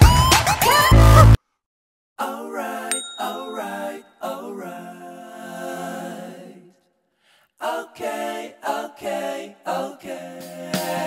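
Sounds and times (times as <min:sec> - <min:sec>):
person singing: 0:02.2 - 0:05.0.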